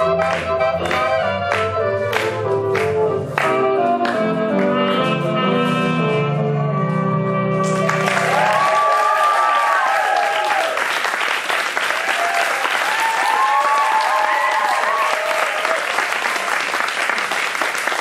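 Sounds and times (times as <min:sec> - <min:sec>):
audience applauding: 0:07.6 - 0:18.0
voices cheering: 0:07.9 - 0:10.9, 0:11.9 - 0:16.8.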